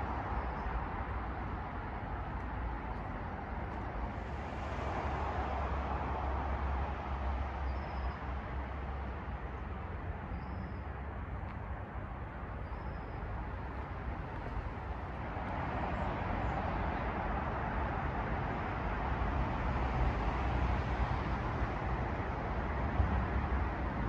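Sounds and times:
faint high bird chirps: 10.3s - 10.9s.

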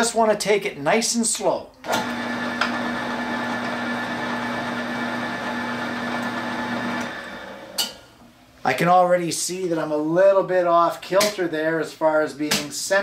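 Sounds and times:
drill press running: 1.9s - 7.8s.

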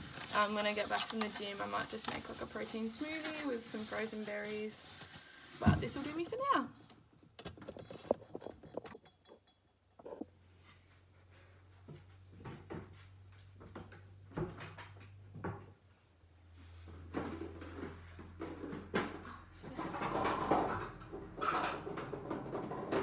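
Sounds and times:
thumps: 7.3s - 10.3s.

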